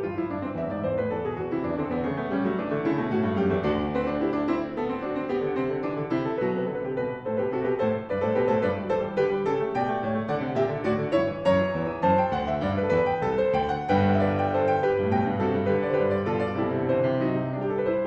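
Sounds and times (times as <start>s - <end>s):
fast piano runs: 0.0s - 18.0s
low piano bass notes: 6.4s - 18.0s.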